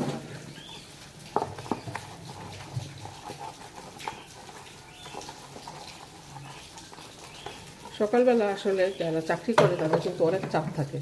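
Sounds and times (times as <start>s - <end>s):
dishes clattering in a sink: 0.0s - 0.7s, 9.5s - 10.9s.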